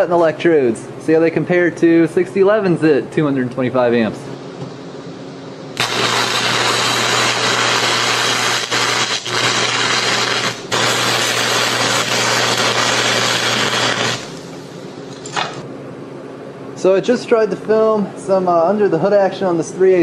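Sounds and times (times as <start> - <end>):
welding arc crackling and hissing: 5.8 - 15.6.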